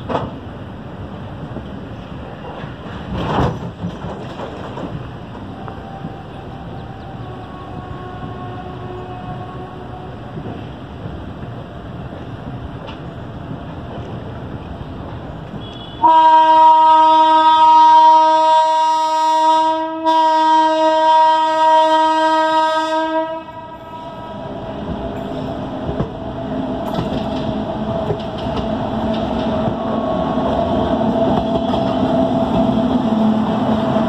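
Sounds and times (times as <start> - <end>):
train rumble and rail clatter: 0.0 - 34.0
locomotive horn blasts: 5.6 - 10.2, 15.5 - 24.4.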